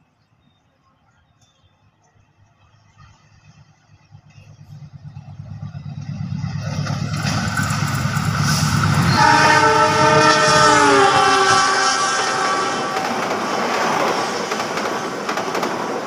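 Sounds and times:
locomotive engine rumble: 0:02.0 - 0:16.0
multi-tone air horn: 0:08.5 - 0:13.3.

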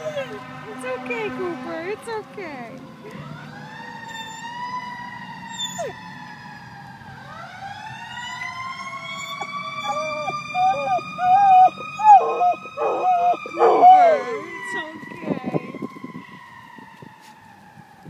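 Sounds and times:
dog howling: 0:00.0 - 0:00.4, 0:08.3 - 0:14.8
fire truck siren wailing: 0:00.0 - 0:18.0.

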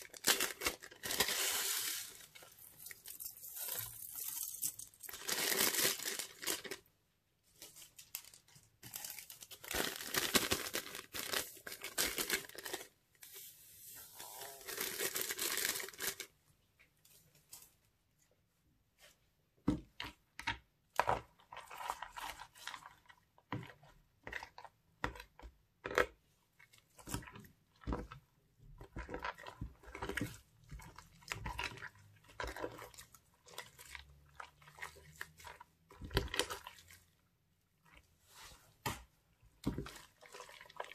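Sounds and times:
plastic bags crinkling: 0:00.0 - 0:06.9, 0:07.6 - 0:12.9, 0:14.2 - 0:16.3.

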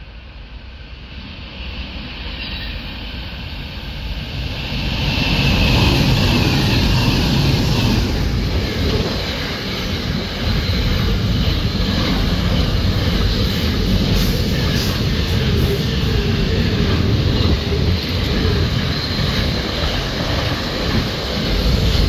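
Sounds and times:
diesel locomotive approaching: 0:00.0 - 0:22.0.

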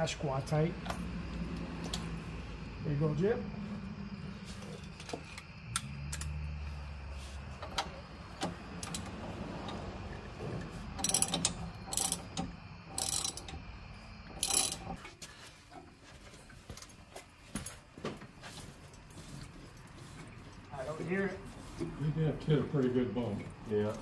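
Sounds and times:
ratchet wrench clicking: 0:07.8 - 0:09.1, 0:11.0 - 0:13.7, 0:14.3 - 0:15.0.

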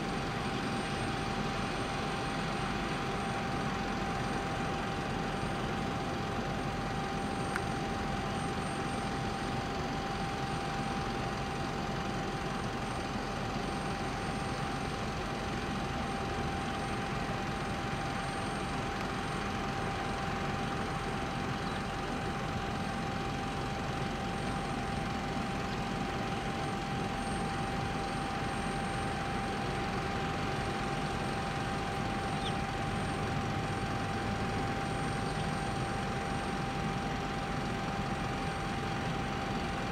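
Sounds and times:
airport machinery rumble and hiss: 0:00.0 - 0:39.9
mid-pitched machine whine: 0:00.0 - 0:39.9.

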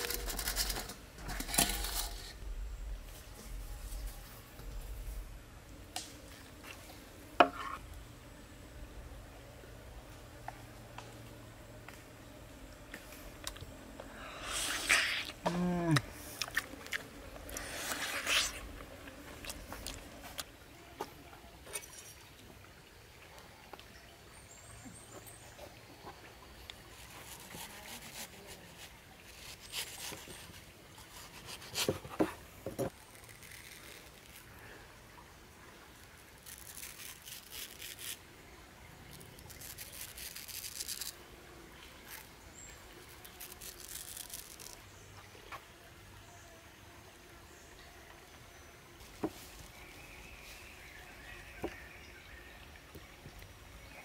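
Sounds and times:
soft scraping of fruit flesh: 0:06.2 - 0:07.9, 0:12.9 - 0:20.5, 0:26.8 - 0:34.8, 0:35.9 - 0:38.2, 0:39.0 - 0:41.2, 0:41.8 - 0:45.6.

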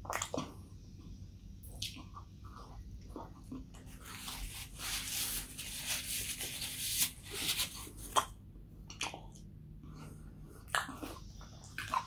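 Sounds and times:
paper napkin rustling: 0:03.9 - 0:08.2.

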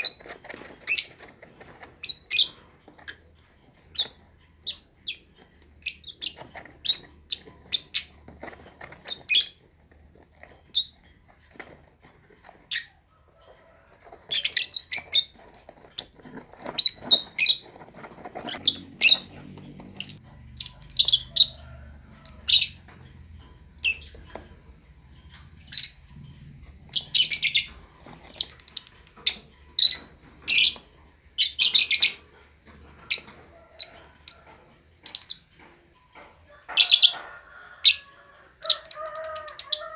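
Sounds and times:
lovebird chirping and chattering: 0:00.0 - 0:01.3, 0:02.0 - 0:03.2, 0:03.8 - 0:08.2, 0:09.0 - 0:09.6, 0:10.7 - 0:11.0, 0:12.7 - 0:13.0, 0:14.3 - 0:17.6, 0:18.4 - 0:21.6, 0:22.2 - 0:22.9, 0:23.8 - 0:24.3, 0:25.6 - 0:32.3, 0:33.0 - 0:35.5, 0:37.8 - 0:38.0, 0:38.6 - 0:39.9.

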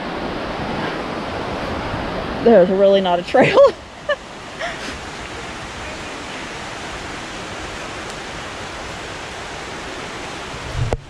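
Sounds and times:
waterfall rushing: 0:00.0 - 0:11.0
low thump on microphone: 0:10.8 - 0:11.0.

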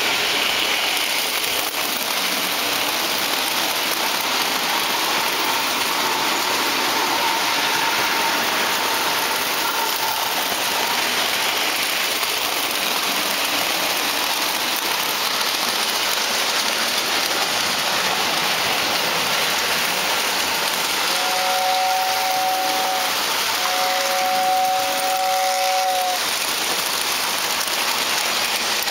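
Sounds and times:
model train wheels and motors rushing: 0:00.0 - 0:28.9
two-note toy train whistle: 0:05.3 - 0:11.1, 0:21.0 - 0:26.3.

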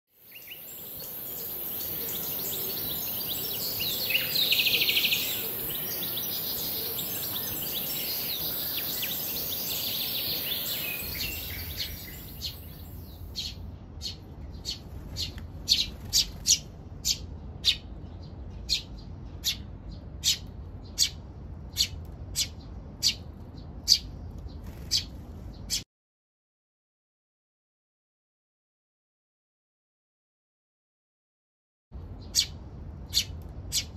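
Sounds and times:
fledgling sparrow begging chatter: 0:00.3 - 0:17.9
short sparrow chirps: 0:00.3 - 0:17.9, 0:32.2 - 0:33.9.

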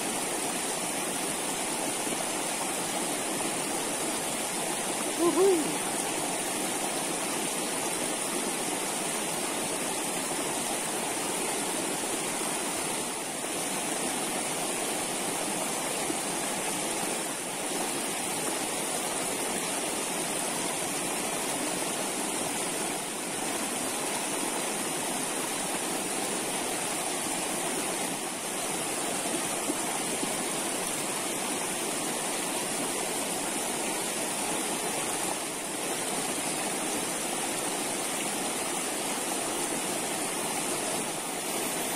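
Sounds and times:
stream water flowing: 0:00.0 - 0:41.9.

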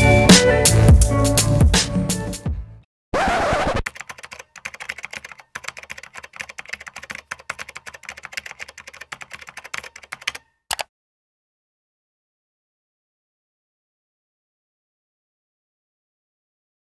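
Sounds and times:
music: 0:00.0 - 0:02.9
computer keyboard typing clicks: 0:03.9 - 0:10.9.

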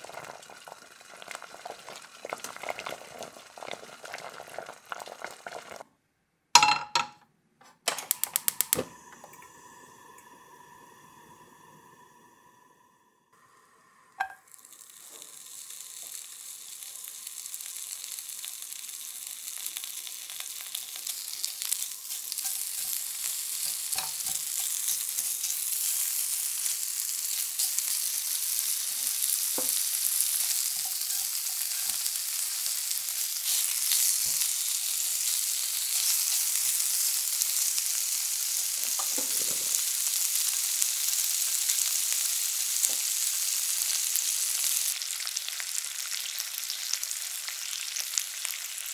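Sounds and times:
meat sizzling in a pan: 0:00.0 - 0:05.8, 0:13.4 - 0:48.9
utensil knocking on pan: 0:06.6 - 0:07.2.

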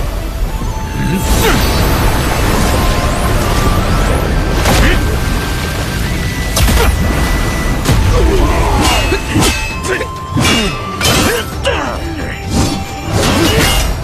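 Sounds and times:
dramatic orchestral score: 0:00.0 - 0:14.0
rushing splashing water: 0:01.2 - 0:11.6.

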